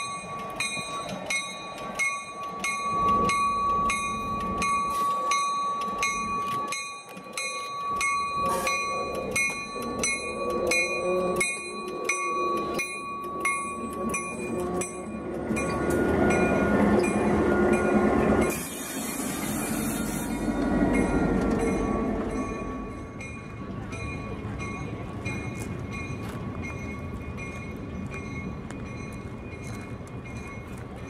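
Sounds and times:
locomotive bell ringing: 0:00.0 - 0:31.0
locomotive engine and running gear: 0:00.0 - 0:31.0
hiss: 0:18.5 - 0:20.4.

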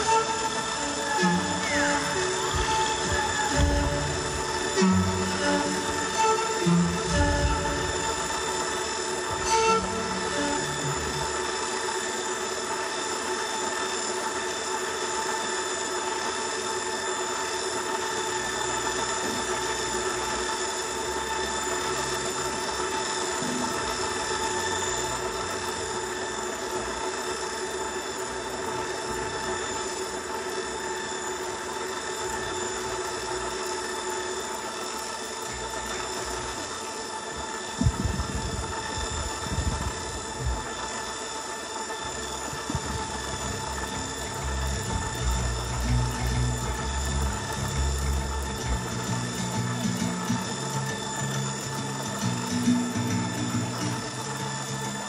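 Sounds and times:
electronic drone: 0:00.0 - 0:55.0
low bass notes: 0:42.7 - 0:50.2.

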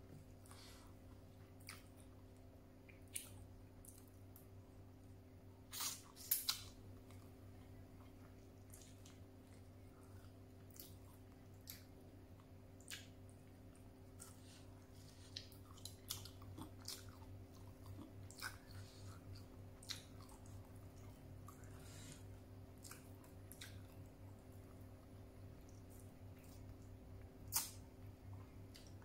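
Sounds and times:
faint steady hum: 0:00.0 - 0:29.0
person chewing: 0:00.4 - 0:02.2, 0:02.8 - 0:04.4, 0:05.7 - 0:24.8, 0:25.6 - 0:29.0
lip smacks and clicks: 0:27.5 - 0:27.8.

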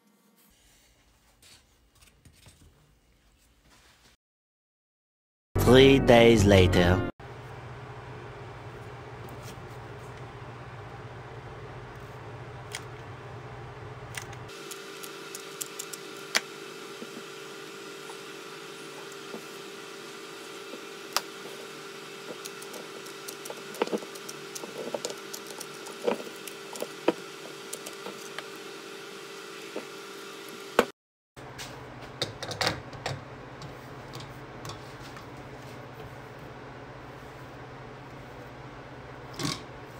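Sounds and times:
steady hum: 0:05.7 - 0:39.9
rubbing and squishing: 0:20.6 - 0:28.5.

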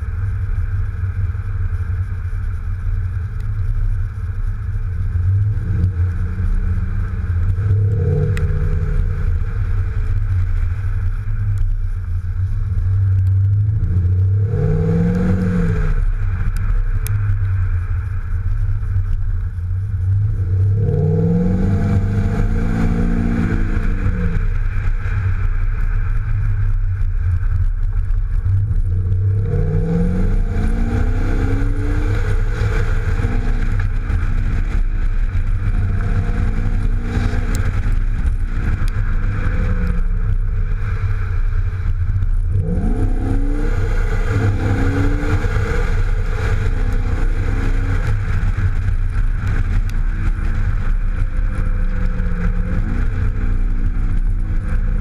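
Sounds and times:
car engine accelerating: 0:00.0 - 0:55.0
road rumble: 0:00.0 - 0:55.0.

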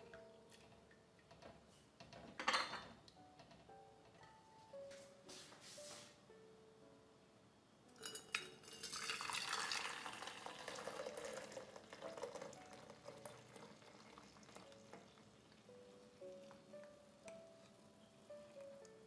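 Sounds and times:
liquid splashing pour: 0:08.6 - 0:15.3.

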